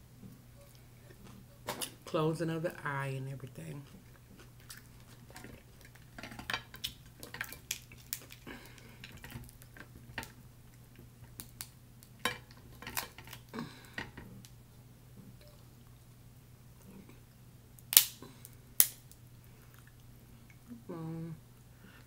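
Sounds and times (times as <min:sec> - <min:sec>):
crab shells cracking: 0:03.9 - 0:14.6, 0:17.8 - 0:20.0.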